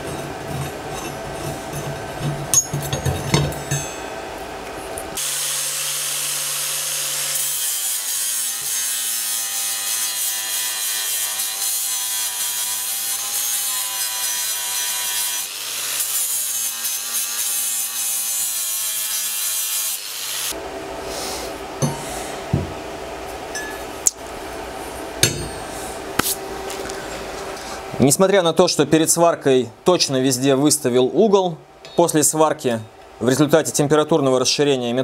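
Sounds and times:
angle grinder grinding steel: 0.0 - 4.1, 5.2 - 20.6.

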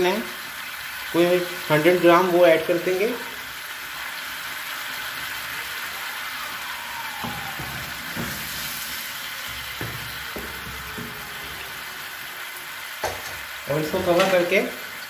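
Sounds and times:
chicken sizzling in a frying pan: 0.0 - 15.0
wooden spoon knocking a pan: 7.2 - 11.8, 13.0 - 14.5.

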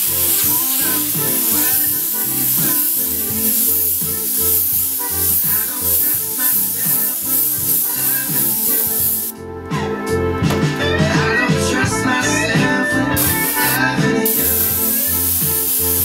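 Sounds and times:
airbrush spraying hiss: 0.0 - 9.3, 13.2 - 16.0
background music: 0.0 - 16.0.

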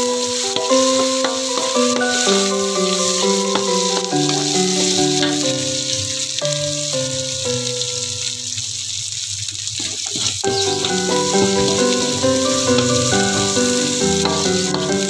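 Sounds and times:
background music: 0.0 - 8.3, 10.4 - 15.0
food sizzling in hot oil: 0.0 - 15.0
spatula stirring in wok: 0.1 - 5.6, 9.8 - 15.0.

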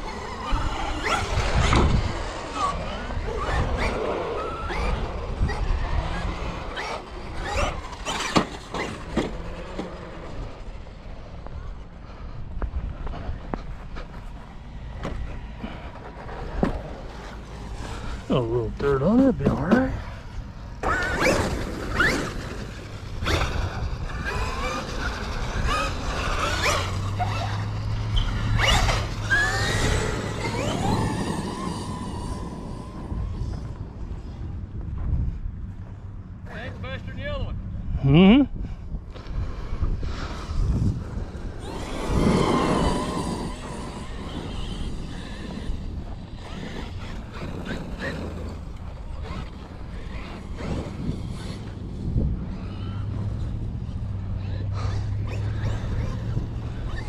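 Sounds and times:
electric motor whining: 17.8 - 34.4, 40.2 - 57.0.

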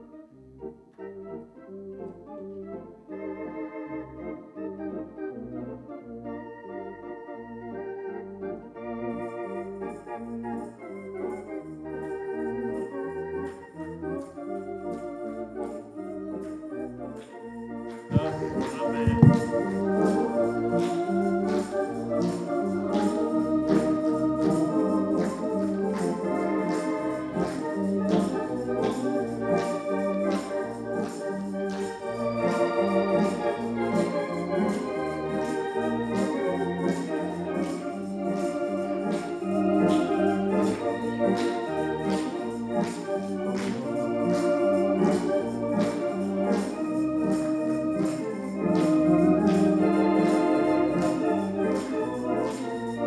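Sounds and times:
organ playing held chords: 0.0 - 53.0
steady beat of short accents: 17.9 - 22.4.

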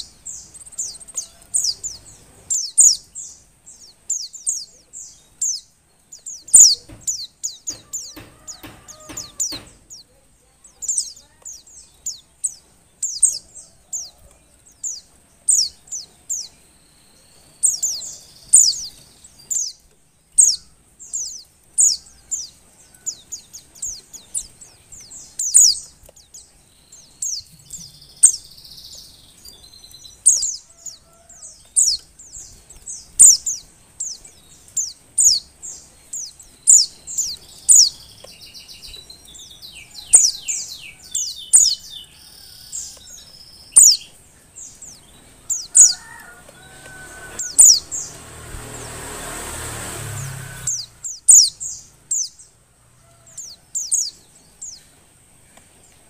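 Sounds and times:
bird chirping: 0.0 - 56.0.

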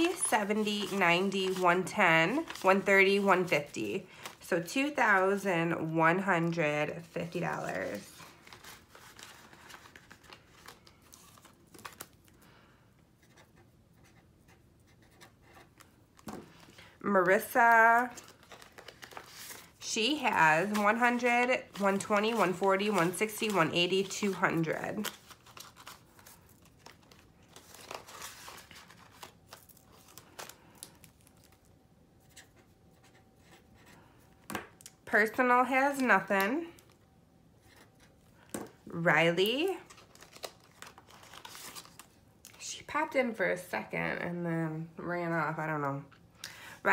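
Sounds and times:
paper and plastic rustling: 0.0 - 4.4, 7.0 - 12.4, 15.0 - 34.4, 39.4 - 42.6
plastic binder pages crinkling: 0.0 - 5.2, 7.0 - 12.4, 14.9 - 35.0, 37.6 - 42.6.

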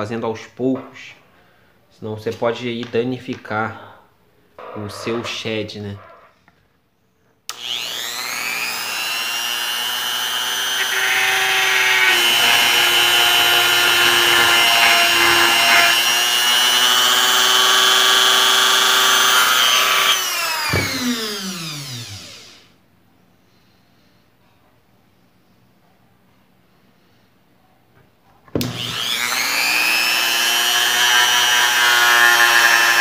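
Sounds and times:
rotary tool whining and grinding: 7.5 - 22.6, 28.6 - 33.0.

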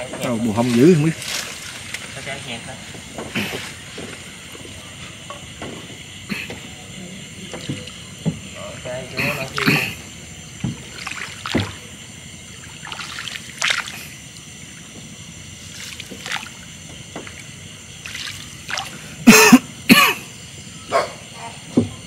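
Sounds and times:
man coughing: 9.2 - 10.0, 19.2 - 20.3
throat-clearing: 9.2 - 10.1, 19.2 - 20.3.

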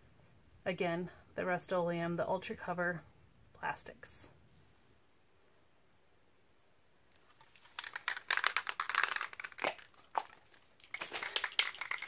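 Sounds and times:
spray can mixing ball rattling: 7.3 - 12.0.

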